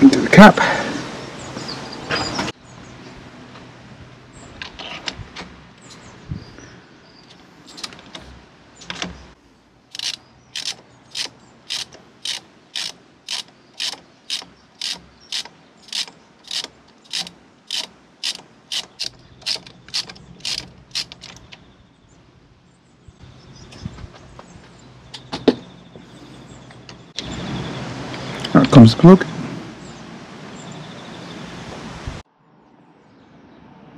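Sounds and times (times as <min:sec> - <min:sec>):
hand ratchet clicking: 0:09.9 - 0:21.4.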